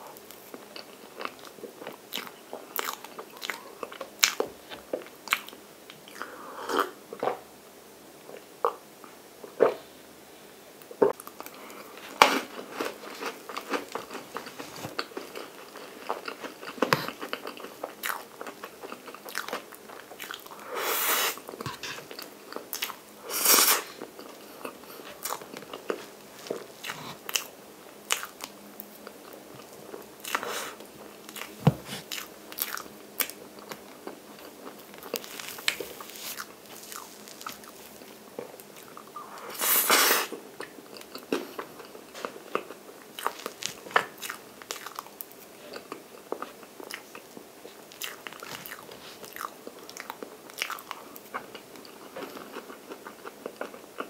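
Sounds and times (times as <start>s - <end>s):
wet chewing and lip smacks: 40.6s - 54.0s.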